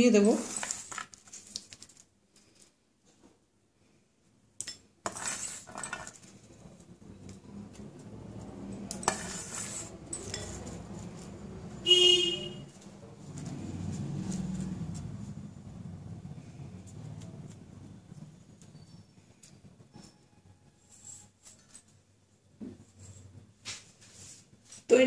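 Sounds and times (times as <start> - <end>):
steel bowl clinking: 8.8 - 10.8.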